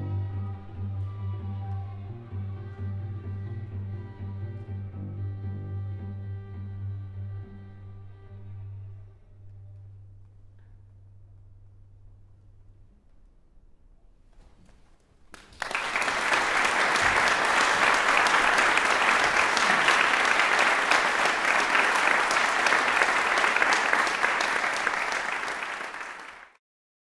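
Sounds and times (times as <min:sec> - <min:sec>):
audience applauding: 0:15.3 - 0:26.6.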